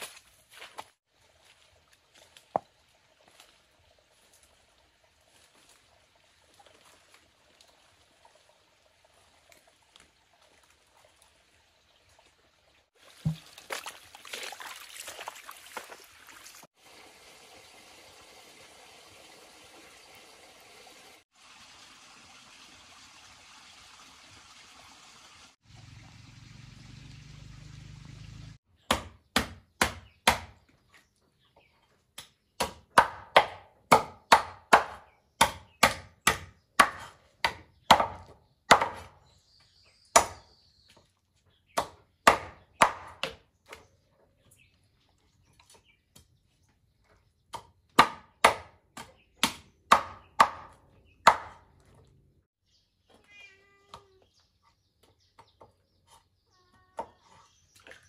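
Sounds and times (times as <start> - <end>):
knife chopping on wooden board: 28.9 - 30.6, 32.2 - 39.1, 47.6 - 51.6.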